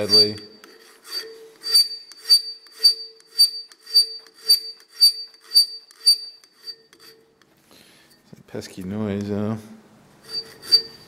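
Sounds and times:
high-pitched metal ring: 0:00.0 - 0:07.3, 0:10.2 - 0:11.0
file stroking across metal: 0:00.0 - 0:07.4, 0:10.2 - 0:11.0.

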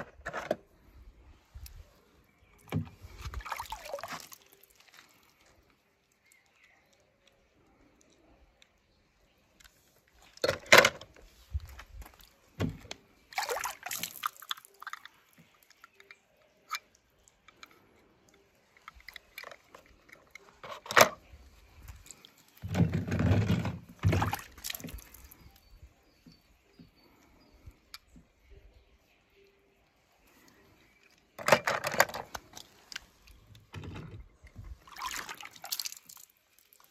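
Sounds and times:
water sloshing and splashing: 0:02.6 - 0:05.5, 0:10.2 - 0:16.0, 0:18.6 - 0:25.6, 0:34.4 - 0:36.9.

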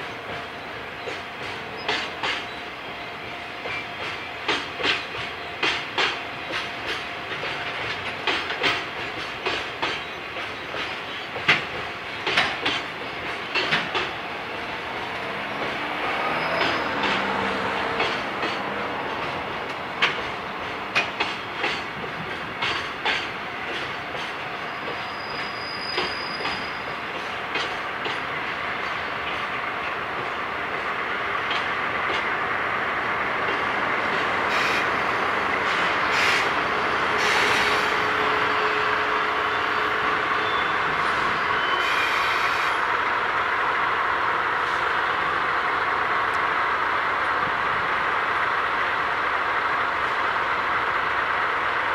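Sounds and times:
diesel locomotive running: 0:00.0 - 0:51.9
freight train rumbling: 0:00.0 - 0:51.9
wheels clacking over rail joints: 0:00.2 - 0:02.7, 0:03.6 - 0:38.6
high wheel squeal: 0:15.4 - 0:17.6, 0:24.5 - 0:27.0, 0:35.8 - 0:42.8
faint high squeal: 0:24.6 - 0:27.0, 0:39.5 - 0:42.5.

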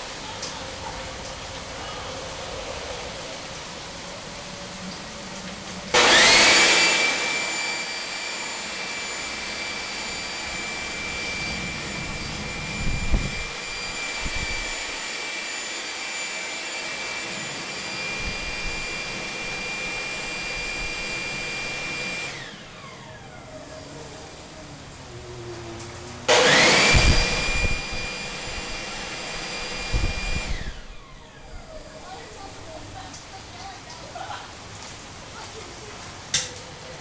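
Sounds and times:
air blower whine: 0:03.4 - 0:32.7.

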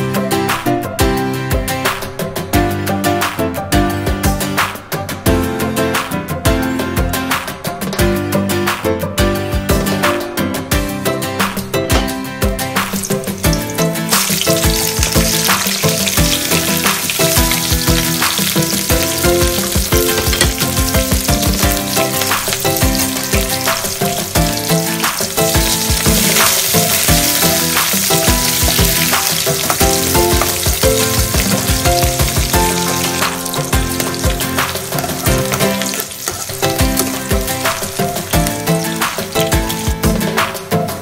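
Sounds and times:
background music: 0:00.0 - 0:41.0
onions sizzling in hot oil: 0:12.8 - 0:40.5.

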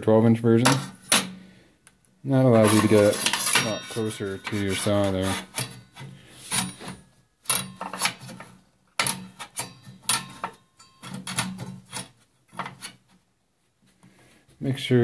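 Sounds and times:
metal protractor knocks and scrapes: 0:00.6 - 0:01.4, 0:02.4 - 0:13.2.

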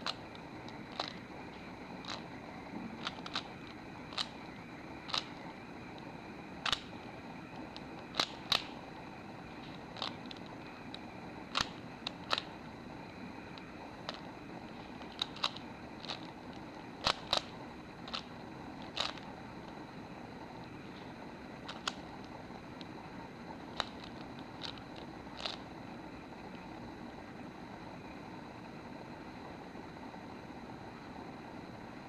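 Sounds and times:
puzzle cube clicking: 0:00.0 - 0:08.9, 0:09.6 - 0:12.6, 0:13.4 - 0:19.8, 0:21.6 - 0:22.9, 0:23.6 - 0:25.8
faint steady hiss: 0:00.0 - 0:32.0.

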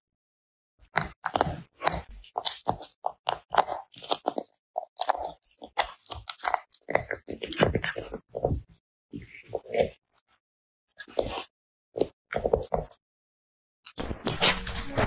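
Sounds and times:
dog crunching food: 0:01.0 - 0:08.2.

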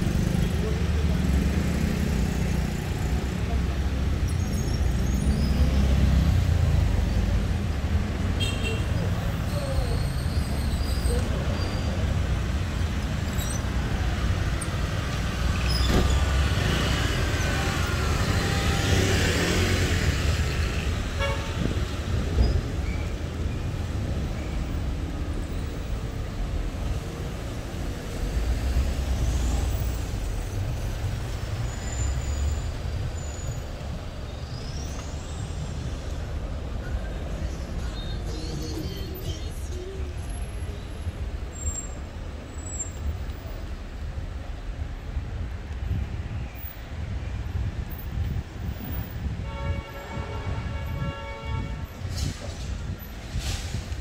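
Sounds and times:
car and scooter engines passing: 0:00.0 - 0:34.3
low rumble of traffic: 0:00.0 - 0:54.0.

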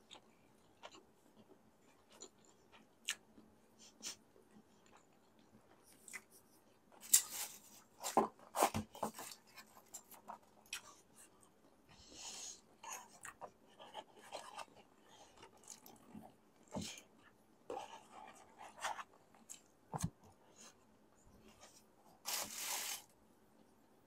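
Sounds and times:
chewing: 0:00.0 - 0:03.4, 0:12.8 - 0:20.1
paper takeout boxes rustling: 0:22.2 - 0:23.1.

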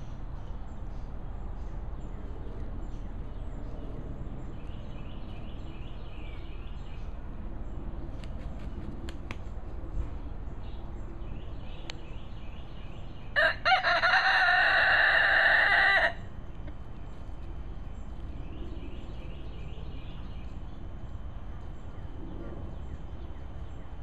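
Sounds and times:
rooster crowing: 0:13.4 - 0:16.3.

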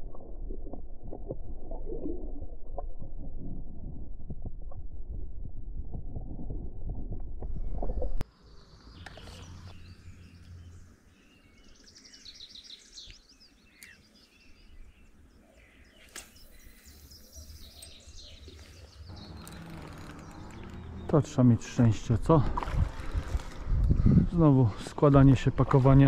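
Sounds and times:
birds chirping and singing: 0:08.4 - 0:22.2.

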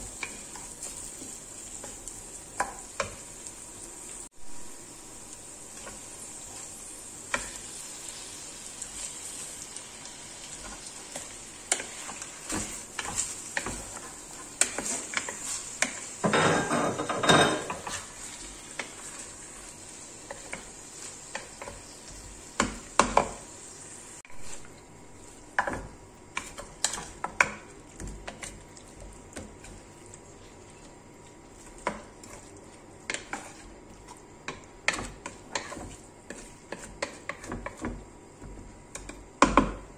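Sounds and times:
vegetables sizzling in oil: 0:00.0 - 0:39.9
wooden spoon scraping a pot: 0:10.5 - 0:23.4, 0:24.3 - 0:38.0.

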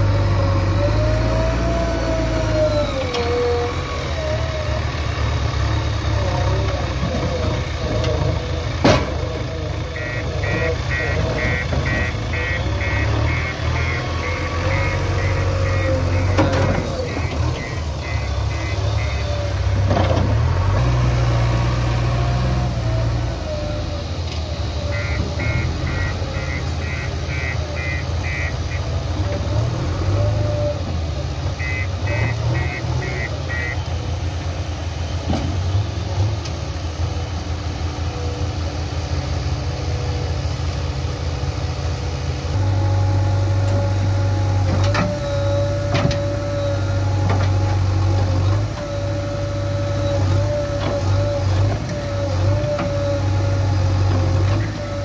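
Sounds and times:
diesel engine and hydraulics: 0:00.0 - 0:55.0
reversing alarm beeps: 0:10.0 - 0:19.6, 0:24.9 - 0:28.9.

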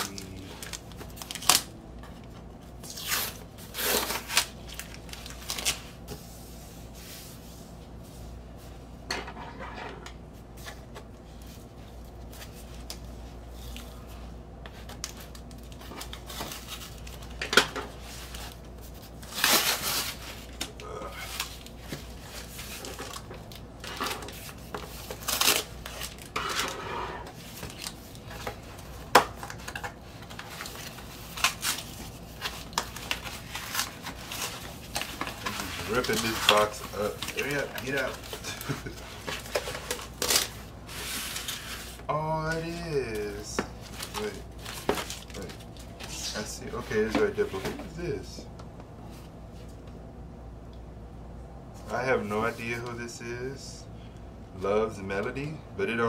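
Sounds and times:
packing tape ripping: 0:00.0 - 0:01.7, 0:02.9 - 0:05.8, 0:19.2 - 0:21.7, 0:22.8 - 0:26.7, 0:29.1 - 0:40.6
cardboard rustling: 0:21.2 - 0:48.2.

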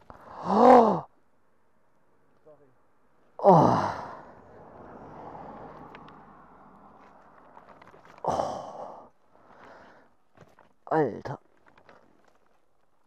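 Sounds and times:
man groaning in pain: 0:00.2 - 0:01.1, 0:03.4 - 0:04.3, 0:08.2 - 0:09.1
man breathing hard: 0:08.2 - 0:10.1.

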